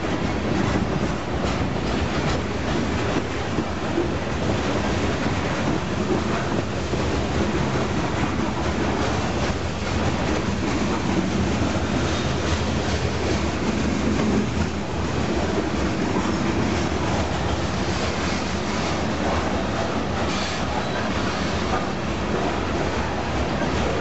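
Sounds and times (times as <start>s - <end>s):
freight train wheels rumbling: 0.0s - 24.0s.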